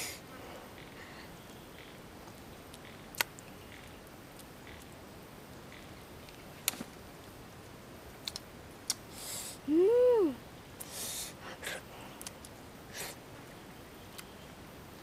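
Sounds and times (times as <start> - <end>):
faint steady hiss: 0.0 - 15.0
clicks and snaps of picking fruit: 1.8 - 5.0, 5.7 - 6.9, 8.2 - 9.1, 12.2 - 12.6, 14.1 - 14.3.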